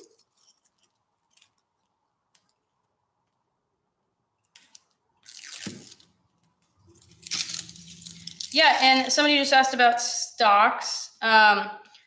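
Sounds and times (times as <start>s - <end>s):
dry onion skin tearing: 4.4s - 6.2s, 6.8s - 9.0s.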